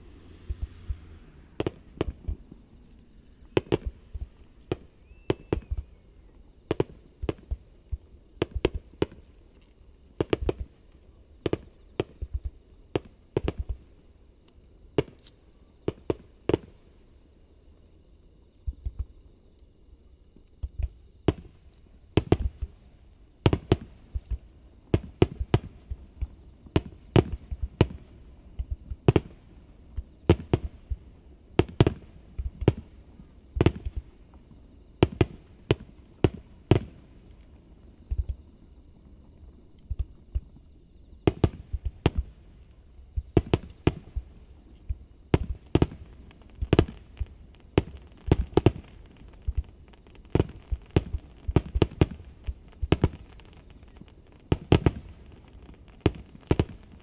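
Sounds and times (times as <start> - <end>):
distant firework booms: 0.0 - 6.0, 23.4 - 34.2, 41.2 - 42.4
high insect trill: 0.0 - 57.0.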